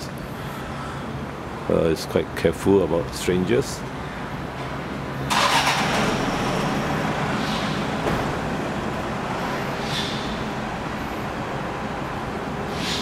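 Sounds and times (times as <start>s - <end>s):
engine humming: 3.8s - 13.0s
rush of noise: 3.9s - 13.0s.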